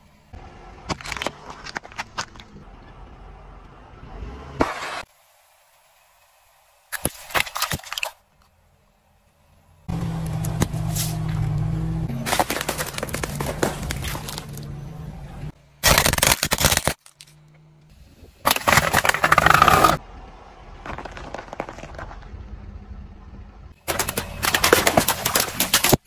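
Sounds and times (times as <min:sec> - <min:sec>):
tyre crushing objects: 0:12.1 - 0:14.6, 0:18.5 - 0:20.0
eggshells cracking: 0:15.8 - 0:17.3.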